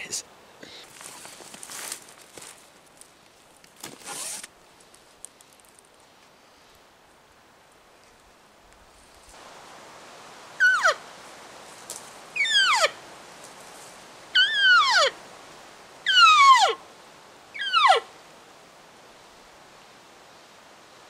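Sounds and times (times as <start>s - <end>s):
elk call mews sliding down: 3.9s - 4.5s.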